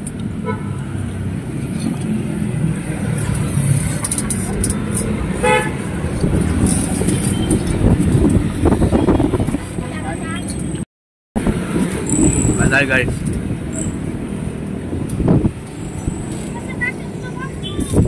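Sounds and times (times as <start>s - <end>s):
road traffic rumbling: 0.0s - 18.0s
vehicle horn toot: 5.4s - 5.8s.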